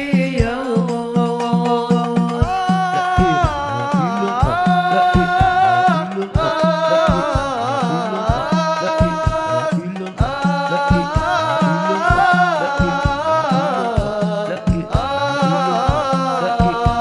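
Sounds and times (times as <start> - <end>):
irregular drum beats: 0.0 - 17.0
singer holding wavering notes: 0.0 - 17.0
low accompaniment: 0.6 - 17.0.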